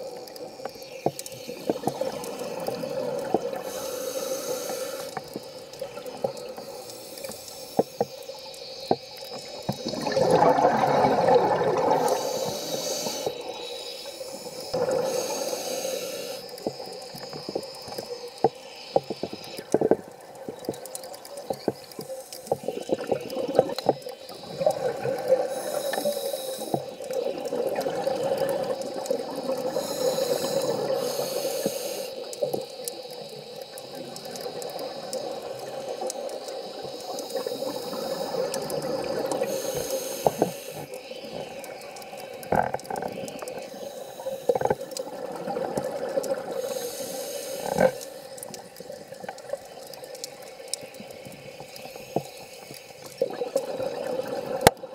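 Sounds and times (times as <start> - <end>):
small clicks: 0.0 - 54.9
regulator inhale hiss: 0.1 - 10.1, 11.0 - 53.3
gurgling exhaled bubbles: 9.5 - 13.5, 14.7 - 15.5, 22.6 - 26.0, 26.8 - 31.0, 53.2 - 54.9.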